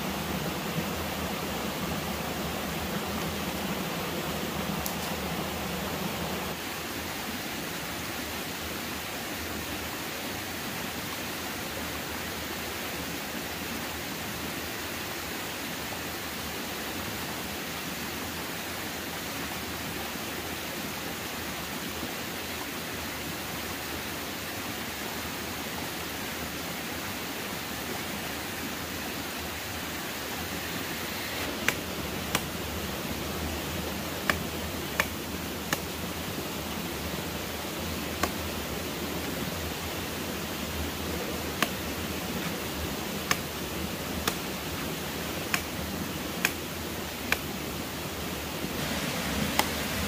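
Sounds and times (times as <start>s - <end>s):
steady rushing noise: 0.0s - 6.6s, 30.4s - 50.0s.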